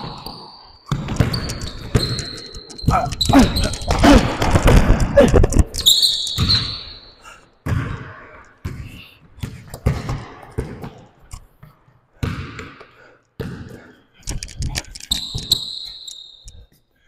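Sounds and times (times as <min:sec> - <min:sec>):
basketball dribbling on court: 0:00.1 - 0:06.8, 0:07.6 - 0:13.9.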